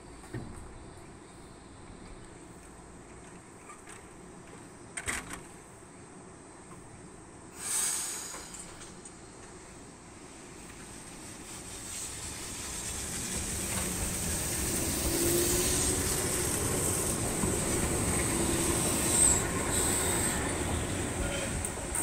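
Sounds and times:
electric train pulling away: 11.2s - 22.0s
wheels squealing on rails: 11.4s - 22.0s.

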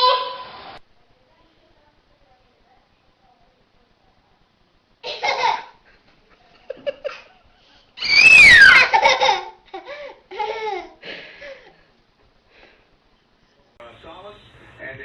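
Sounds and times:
toddler laughing: 5.0s - 5.8s, 8.6s - 11.0s.

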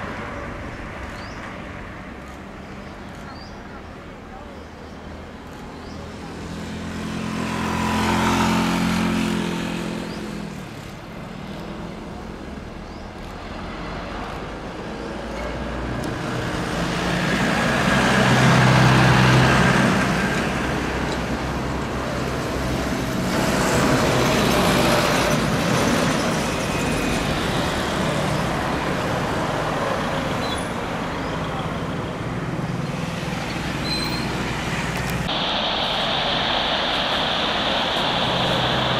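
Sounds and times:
jet engines roaring: 16.1s - 31.1s, 34.4s - 38.9s
faint engine whine: 34.8s - 38.9s.

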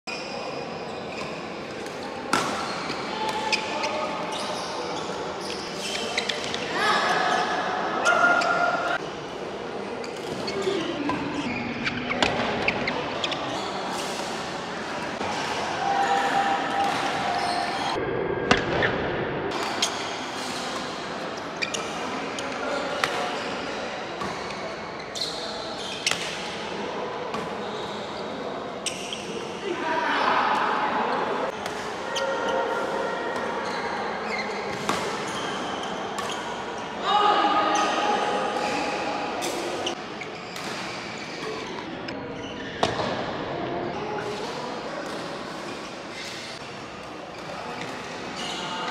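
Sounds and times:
shoes squeaking on court floor: 0.1s - 7.6s, 10.0s - 14.5s, 16.1s - 18.0s, 19.5s - 26.6s, 27.3s - 29.5s, 33.4s - 36.8s, 37.7s - 43.1s, 44.2s - 46.7s, 47.3s - 48.9s.

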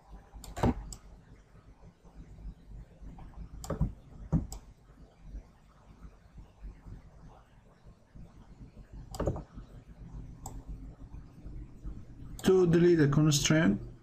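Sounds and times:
computer mouse clicking: 0.4s - 1.1s, 3.2s - 4.7s, 9.1s - 9.5s, 10.4s - 10.7s.

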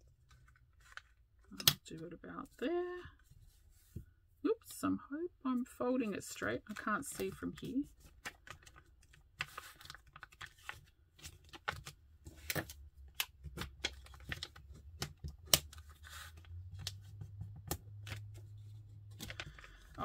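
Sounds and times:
plastic film crackling: 6.7s - 17.0s, 19.1s - 20.0s.

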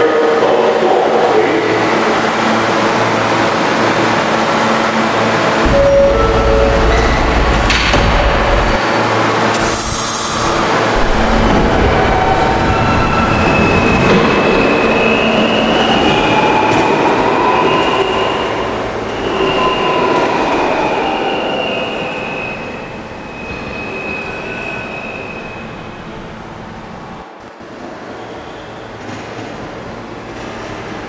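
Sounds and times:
subway train wheel and track rumble: 0.0s - 31.0s
train whine: 0.0s - 31.0s
high wheel squeal: 9.5s - 11.0s, 17.6s - 25.9s.

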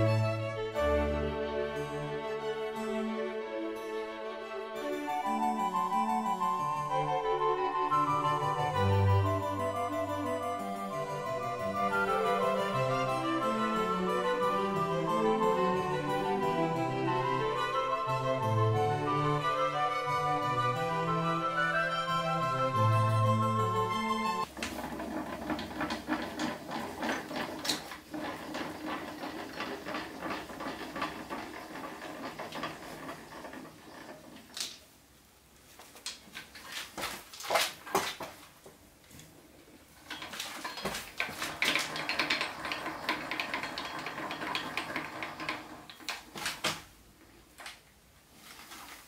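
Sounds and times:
metallic clattering and rattling: 24.4s - 34.8s, 39.9s - 47.0s.

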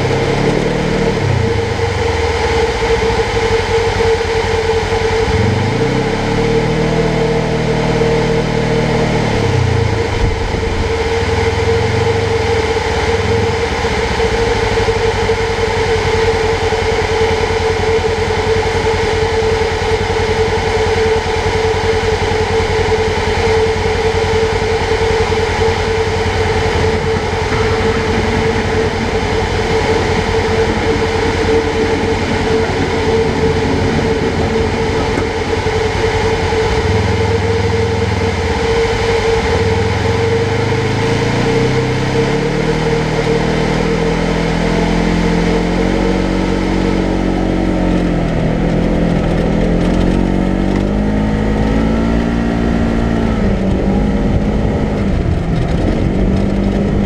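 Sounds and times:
steady high whine: 0.0s - 57.0s
utility vehicle engine running: 0.0s - 57.0s.

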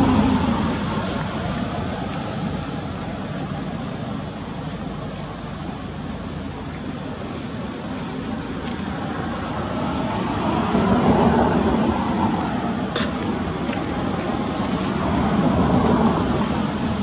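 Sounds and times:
high hiss-like drone: 0.0s - 17.0s.

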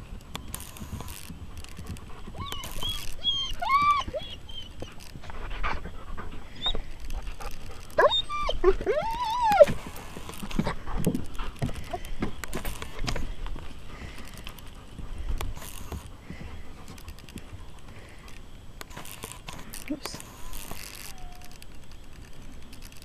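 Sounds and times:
high whining cries: 2.4s - 5.1s, 8.0s - 10.5s, 20.5s - 21.8s.

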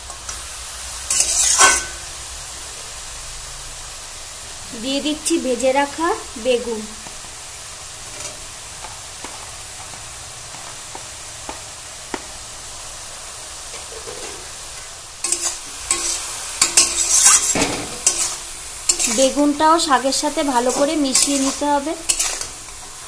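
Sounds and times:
vegetables sizzling in a wok: 0.0s - 23.0s
metal spatula scraping pan: 1.1s - 2.0s, 15.2s - 19.6s, 20.5s - 22.9s.

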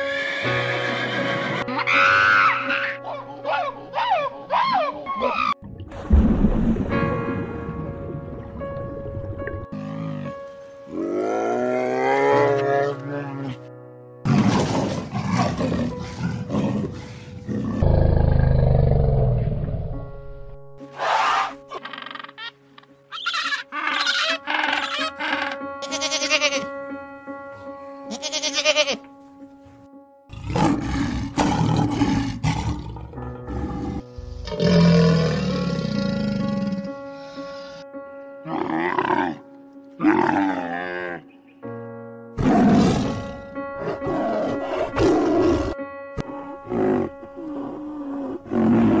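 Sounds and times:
background music: 0.0s - 49.0s
tigers snarling and growling: 14.3s - 19.5s, 30.3s - 36.9s, 42.4s - 45.8s, 46.6s - 49.0s
penguins braying: 21.0s - 26.7s.

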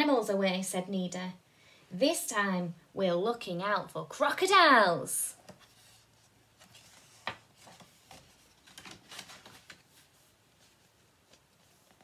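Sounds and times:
pages and cover rustling: 5.4s - 12.0s.

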